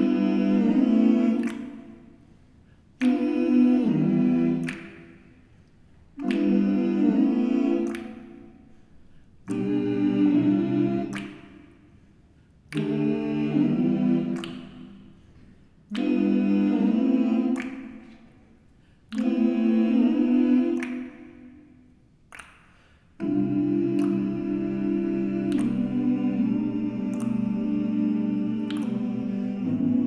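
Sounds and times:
men singing a cappella chords: 0.0s - 5.4s, 6.2s - 8.8s, 9.4s - 11.9s, 12.7s - 21.6s, 23.2s - 30.0s.

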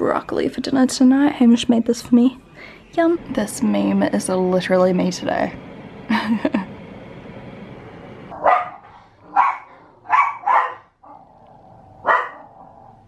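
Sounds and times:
dog barking: 8.4s - 11.2s, 12.0s - 12.8s.

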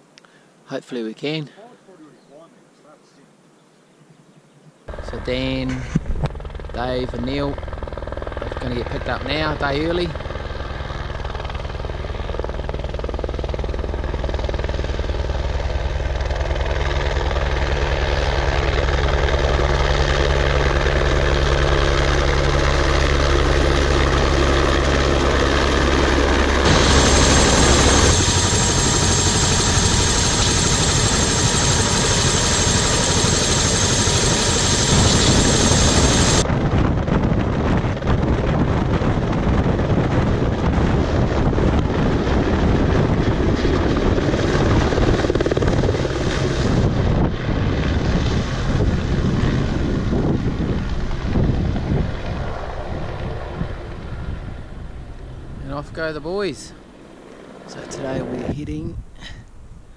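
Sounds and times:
high whine: 4.9s - 38.0s
helicopter rotor beat: 4.9s - 59.2s.

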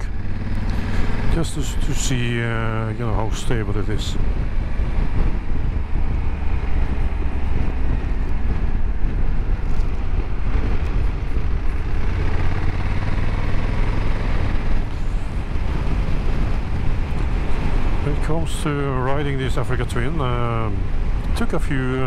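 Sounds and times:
motorcycle engine running: 0.0s - 1.8s, 4.2s - 18.0s
road noise: 0.0s - 22.0s.

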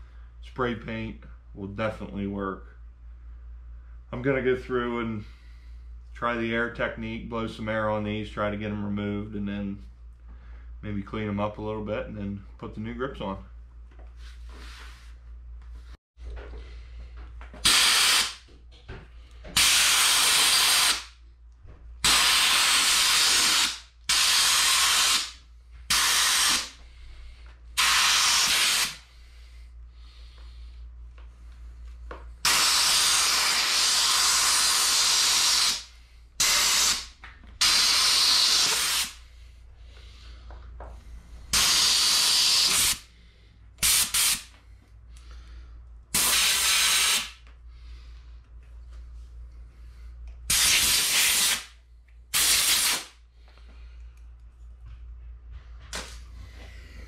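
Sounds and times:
compressed air blow gun hissing: 22.0s - 26.8s, 27.8s - 29.1s, 32.4s - 39.2s, 41.5s - 43.1s, 43.8s - 44.5s, 46.2s - 47.4s, 50.5s - 51.7s, 52.3s - 53.1s.

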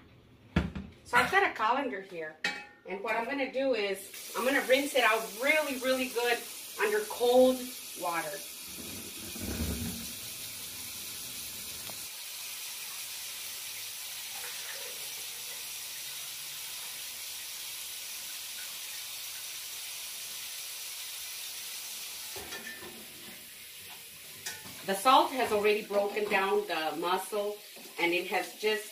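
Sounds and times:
tap water running into sink: 4.1s - 26.6s.

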